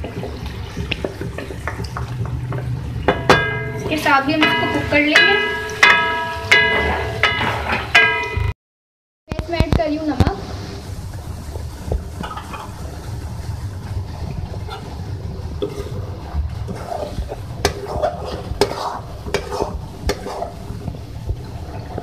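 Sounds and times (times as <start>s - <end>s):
curry bubbling: 0.0s - 8.0s, 9.8s - 22.0s
spoon knocking against pan: 1.4s - 8.5s
spoon scraping through sauce: 16.7s - 20.6s.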